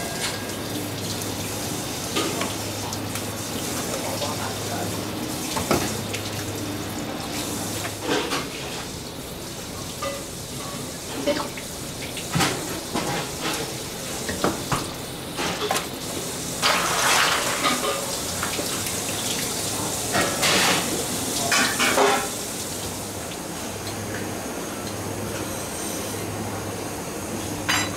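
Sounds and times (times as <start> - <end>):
metal kitchenware clinking: 27.7 - 27.9.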